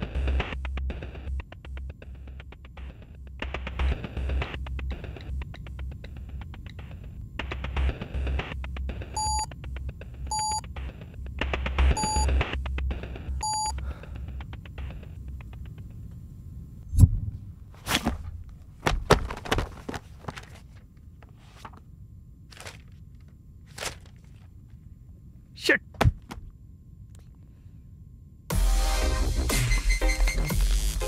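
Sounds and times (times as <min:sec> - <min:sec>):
short electronic error beeps: 0:12.0 - 0:12.3, 0:13.4 - 0:13.8
handling knocks and rustles: 0:17.8 - 0:21.8, 0:22.5 - 0:24.5.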